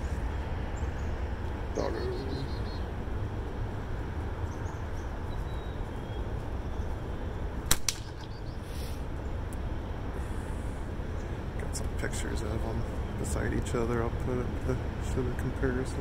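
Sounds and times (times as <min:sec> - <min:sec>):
low outdoor rumble: 0:00.0 - 0:16.0
slingshot bands snapping: 0:07.7 - 0:08.3.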